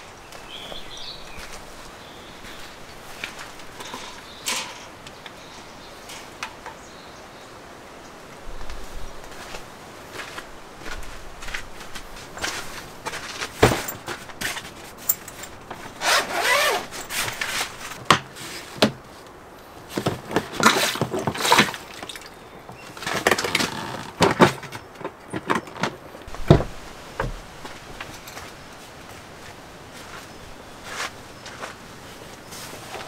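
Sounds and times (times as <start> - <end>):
heavy thump: 26.3 - 27.4.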